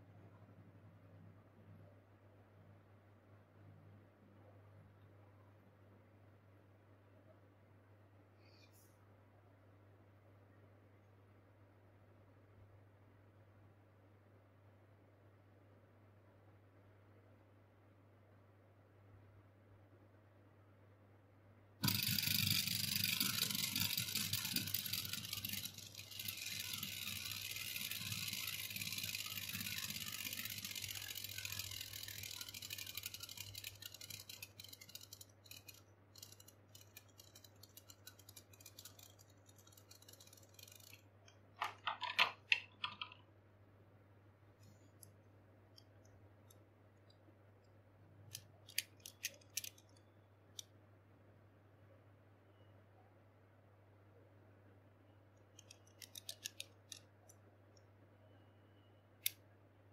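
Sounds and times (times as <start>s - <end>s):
spinning top rattling: 21.8s - 43.2s, 48.7s - 50.0s, 55.6s - 57.0s
spinning top whirring: 21.8s - 43.2s, 48.7s - 49.9s, 55.6s - 57.0s.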